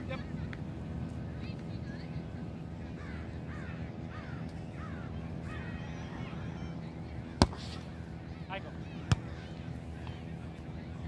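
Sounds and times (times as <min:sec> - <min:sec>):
low background rush: 0:00.0 - 0:11.0
bird calling: 0:03.0 - 0:06.8.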